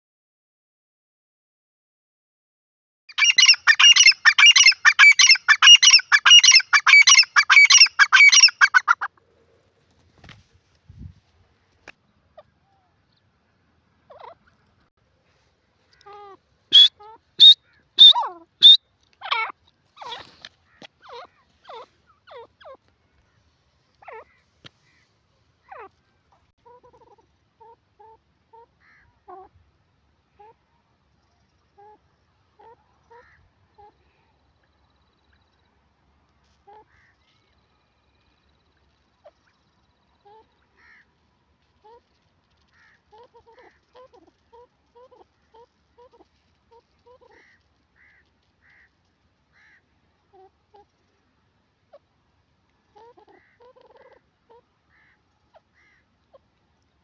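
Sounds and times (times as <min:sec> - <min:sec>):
bird calling harsh notes: 0:03.1 - 0:09.1, 0:16.7 - 0:22.7
bird clucking softly: 0:03.2 - 0:09.2, 0:15.9 - 0:22.9, 0:25.7 - 0:29.6, 0:41.8 - 0:48.9, 0:53.0 - 0:56.5.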